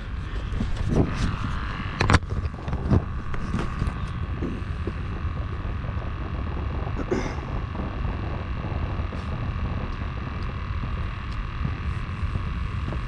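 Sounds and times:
faint hum: 0.0s - 13.0s
low rumble: 0.0s - 13.0s
hand knocking camera: 2.0s - 5.7s.

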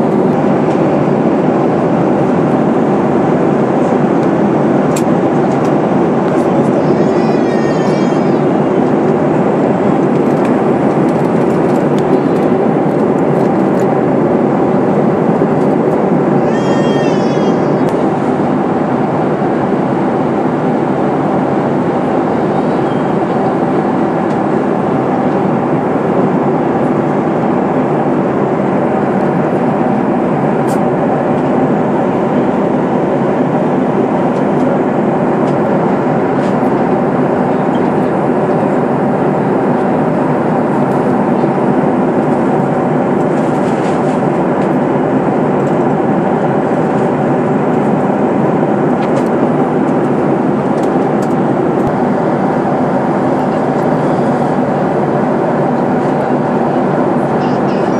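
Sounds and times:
airliner cabin air rush: 0.0s - 57.9s
jet engine drone: 0.0s - 57.9s.

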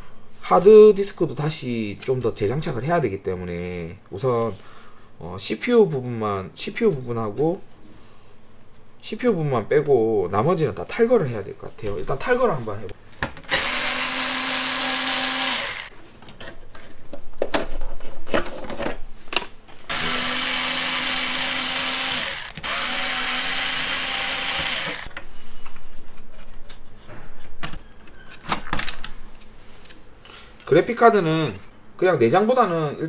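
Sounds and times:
cordless electric screwdriver running: 13.5s - 15.9s, 19.9s - 25.1s.

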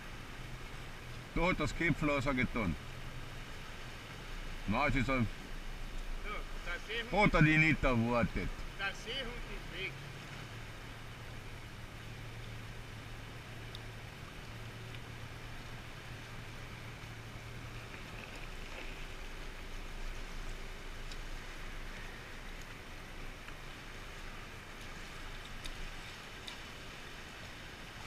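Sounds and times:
seawater lapping in a cave: 0.0s - 28.0s
steady low hum: 0.0s - 28.0s
faint clicks: 13.6s - 15.1s.

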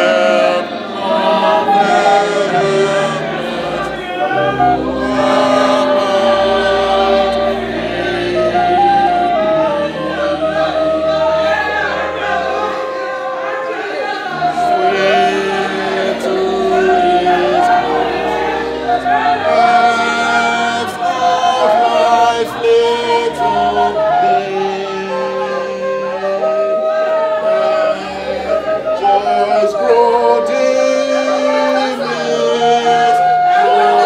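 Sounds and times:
voices singing: 0.0s - 34.0s.

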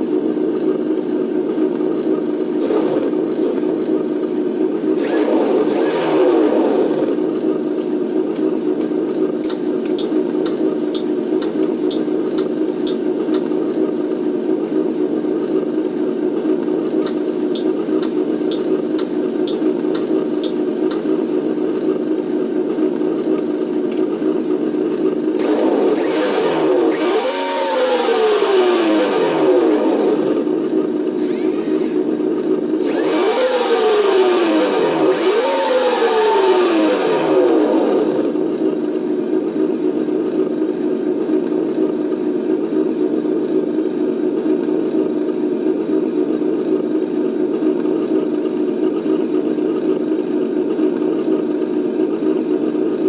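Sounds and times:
simulated engine through small speaker: 0.0s - 53.0s.

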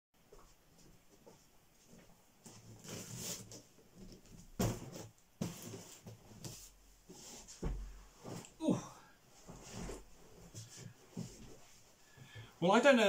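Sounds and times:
box knocks and scrapes on table: 4.6s - 6.2s.

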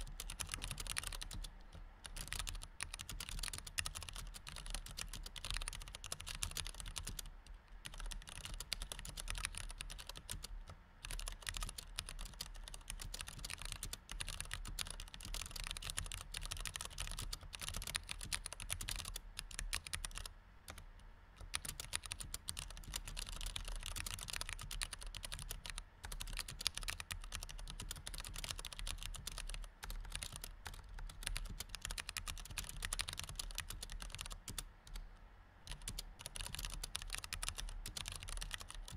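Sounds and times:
typing on computer keyboard: 0.0s - 20.8s, 21.4s - 35.0s, 35.7s - 38.9s.

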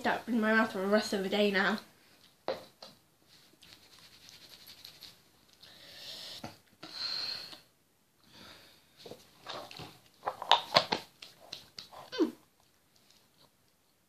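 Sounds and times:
hissing breath: 5.6s - 7.7s.

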